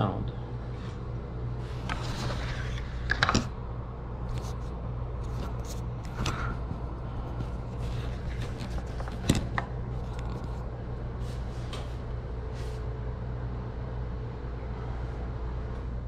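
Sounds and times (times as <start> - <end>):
low room hum: 0.0 - 16.0
handling rustles and clicks: 5.2 - 10.6.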